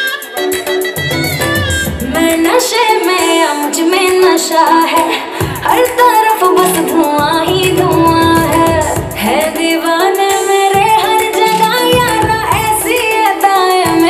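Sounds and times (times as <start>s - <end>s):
dance music backing: 0.0s - 14.0s
deep bass beat: 1.0s - 2.6s, 7.2s - 9.4s
woman singing: 1.8s - 14.0s.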